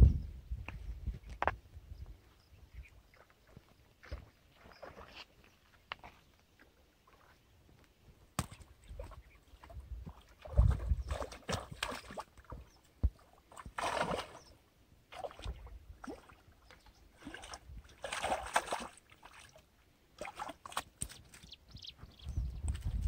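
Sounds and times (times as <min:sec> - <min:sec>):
fish thrashing and splashing: 0:10.1 - 0:12.6, 0:13.5 - 0:14.5, 0:17.2 - 0:19.5.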